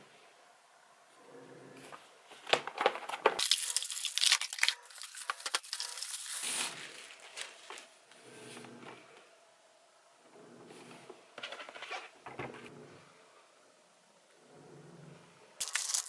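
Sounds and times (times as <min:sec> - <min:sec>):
plastic bags crinkling: 0:03.4 - 0:07.9, 0:15.6 - 0:16.0.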